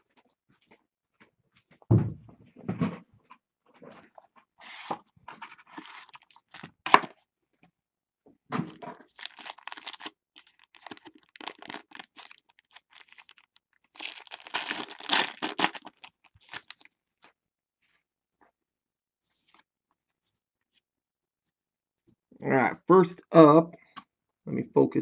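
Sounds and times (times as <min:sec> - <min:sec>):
foil pack crinkling: 0:04.6 - 0:07.0, 0:08.7 - 0:16.9
foil pack tearing: 0:05.7 - 0:07.0, 0:08.7 - 0:16.9.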